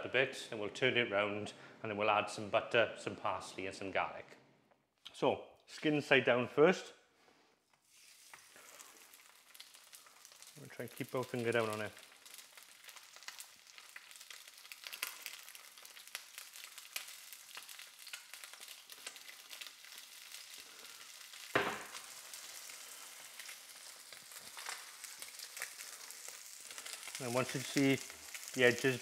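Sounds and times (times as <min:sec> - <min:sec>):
fish sizzling in oil: 0:07.8 - 0:29.0
loud knock: 0:21.6 - 0:21.9.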